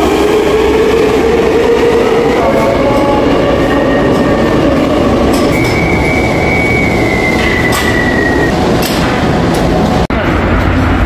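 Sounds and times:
subway train rumbling on rails: 0:00.0 - 0:11.0
high wheel squeal: 0:05.3 - 0:08.5.

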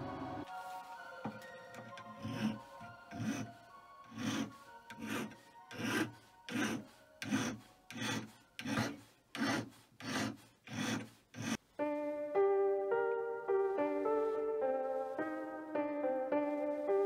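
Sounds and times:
hand file rasping on metal tube: 0:01.8 - 0:11.6.

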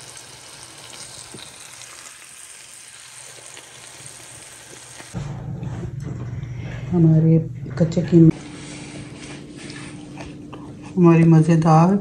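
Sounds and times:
meat frying in oil: 0:00.0 - 0:05.2.

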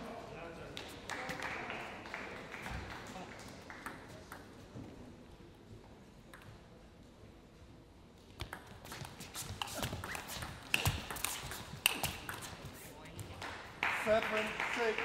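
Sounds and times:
table tennis ball clicking: 0:10.0 - 0:12.6.

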